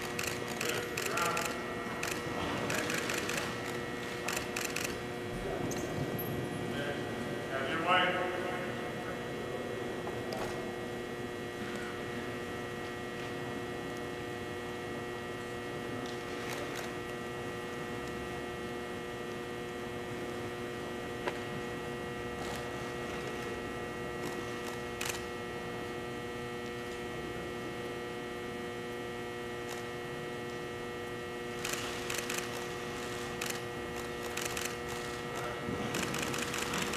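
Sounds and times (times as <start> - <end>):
steady hum of constant tones: 0.0 - 36.9.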